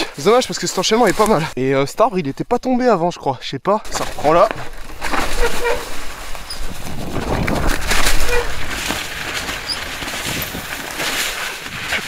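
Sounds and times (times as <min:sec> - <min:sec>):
bike tyres rolling over snow: 0:00.2 - 0:01.6, 0:03.9 - 0:12.0
bike knocks and rattles: 0:03.9 - 0:12.0
wind buffeting microphone: 0:06.0 - 0:10.8.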